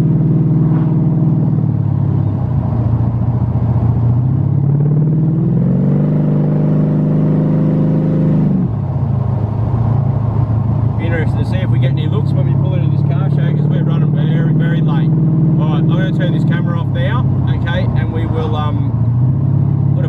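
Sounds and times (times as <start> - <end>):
car engine revving in cabin: 11.0 - 20.0.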